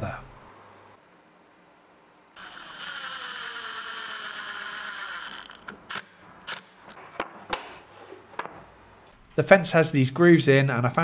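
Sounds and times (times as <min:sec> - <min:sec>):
cordless drill whining: 0:02.4 - 0:06.6.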